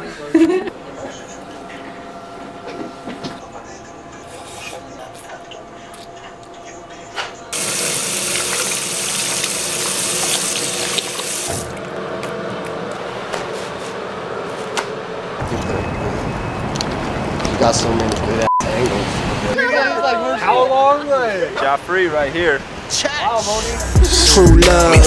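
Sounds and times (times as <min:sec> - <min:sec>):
tap water running on hands: 0:07.6 - 0:11.8.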